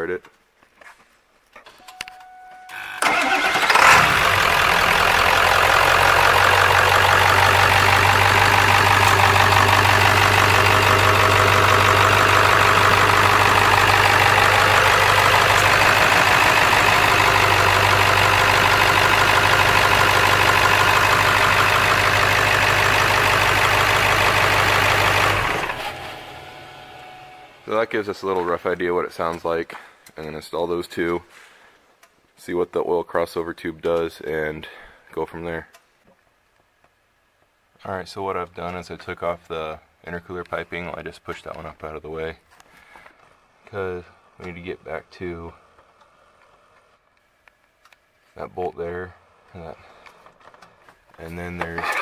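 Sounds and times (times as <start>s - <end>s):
diesel engine cranking: 2.7s - 28.0s, 51.6s - 52.0s
diesel engine idling: 3.0s - 28.4s.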